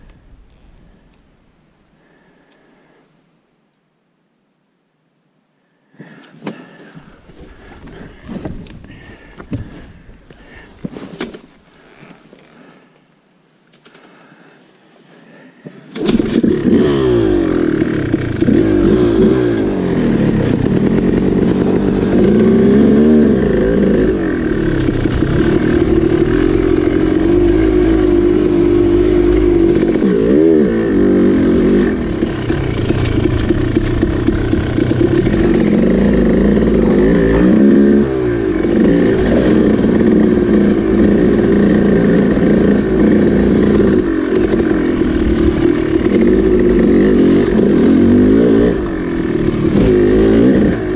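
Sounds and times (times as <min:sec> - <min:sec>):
dirt bike engine revving: 0:16.0 - 0:50.9.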